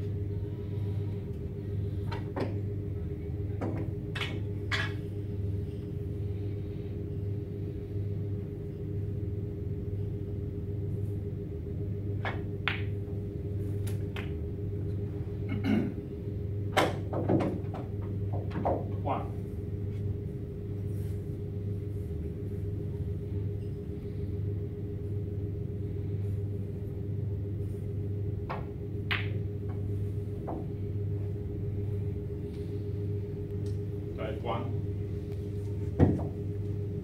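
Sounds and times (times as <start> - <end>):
low room hum: 0.0 - 37.0
snooker balls clicking and knocking: 12.2 - 13.1, 13.8 - 14.5, 16.8 - 19.0.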